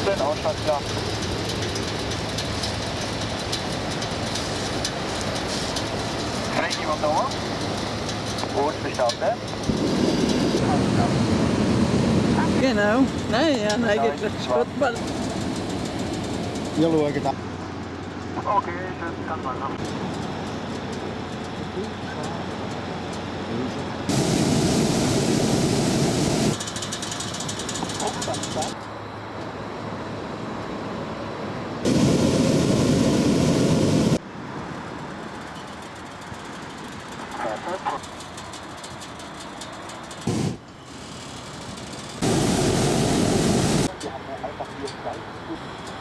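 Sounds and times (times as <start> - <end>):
propane burner blasting: 0.0 - 17.8, 24.0 - 27.0, 31.8 - 34.2, 40.2 - 44.0
propane burner blast: 9.5 - 13.0, 24.1 - 26.6, 31.8 - 34.2, 40.2 - 43.9.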